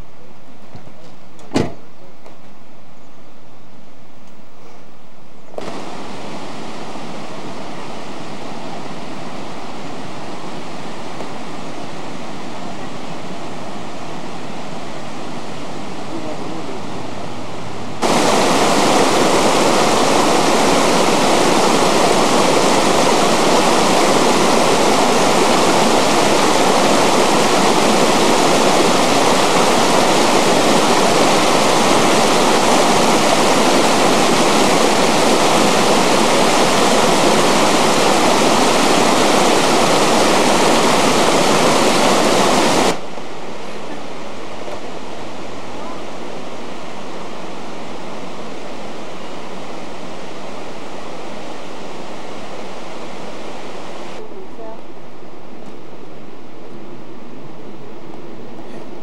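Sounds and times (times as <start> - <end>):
creek rushing over rocks: 5.6 - 12.0, 17.7 - 49.6.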